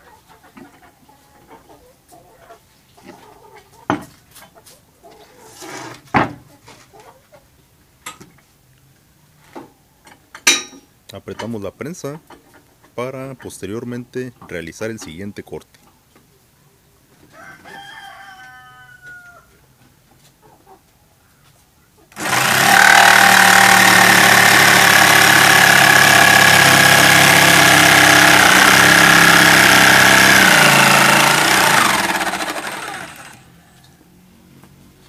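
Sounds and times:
jigsaw cutting plywood: 22.1s - 33.4s.

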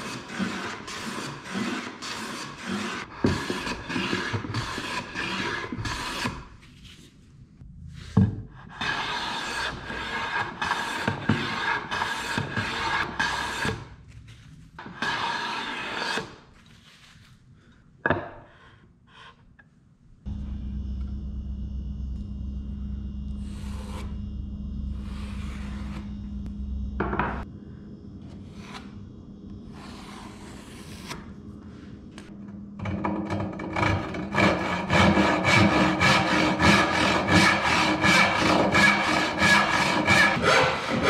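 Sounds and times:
hand plane shaving wood: 0.0s - 6.4s, 8.7s - 13.8s, 14.8s - 16.4s, 33.8s - 41.0s
handsaw cutting wood: 0.0s - 6.4s, 8.7s - 13.8s, 14.8s - 16.3s, 34.3s - 41.0s
steady hum: 20.0s - 41.0s.

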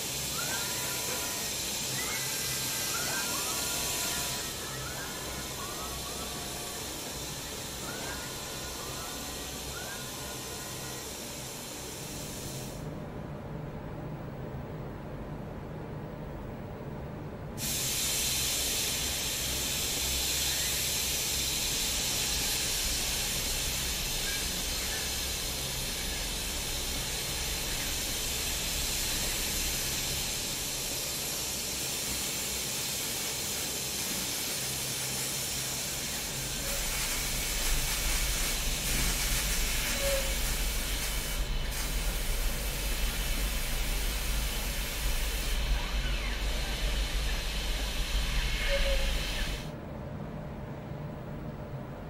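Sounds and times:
paint spraying hiss: 0.0s - 12.8s, 17.6s - 49.7s
low machine hum: 35.7s - 52.0s.

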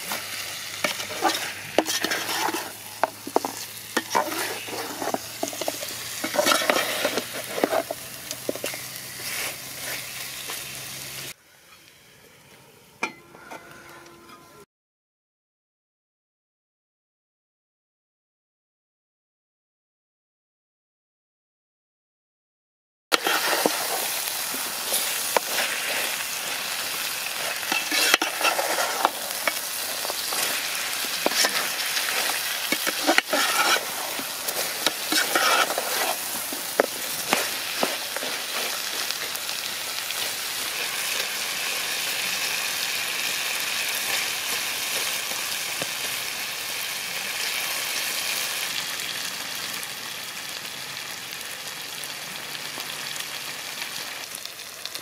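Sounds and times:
curry sizzling and bubbling in pot: 0.0s - 11.4s, 23.1s - 55.0s
metal ladle scraping a pot: 0.1s - 10.7s, 23.2s - 41.3s.

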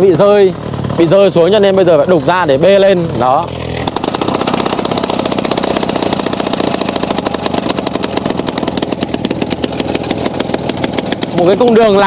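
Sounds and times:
rock drill hammering stone: 3.0s - 12.0s.

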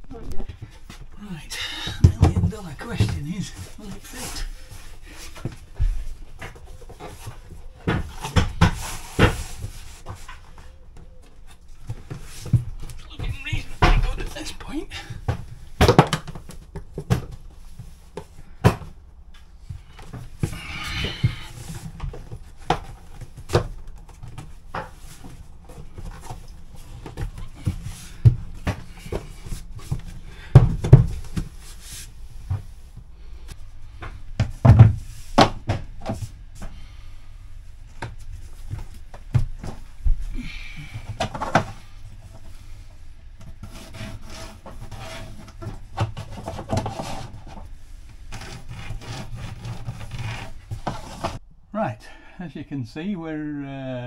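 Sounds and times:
floor planks knocking: 1.8s - 3.6s.

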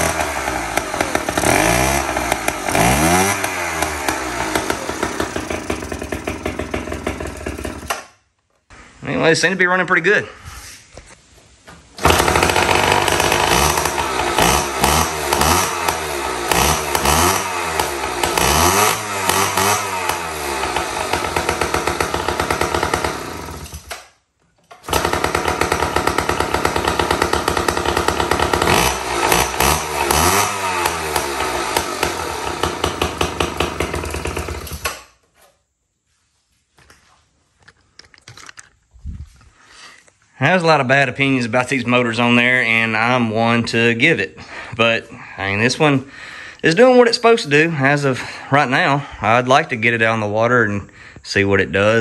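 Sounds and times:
outboard motor revving: 0.0s - 8.0s, 12.0s - 23.9s, 24.9s - 34.9s.

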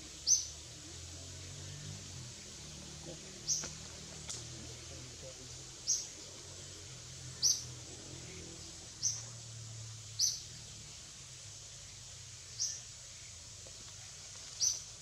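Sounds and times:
bird chirping: 0.0s - 3.9s, 4.7s - 9.4s, 10.0s - 11.0s, 11.8s - 13.4s, 14.5s - 15.0s.

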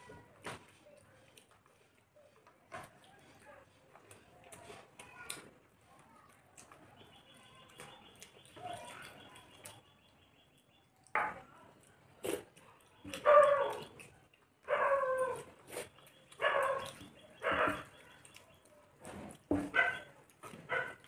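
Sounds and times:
dog barking: 13.1s - 13.9s, 14.6s - 15.5s, 16.4s - 18.2s, 19.6s - 21.0s.

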